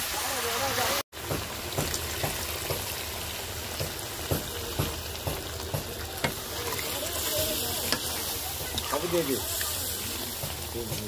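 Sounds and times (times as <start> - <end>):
curry sizzling in a pan: 0.0 - 11.0.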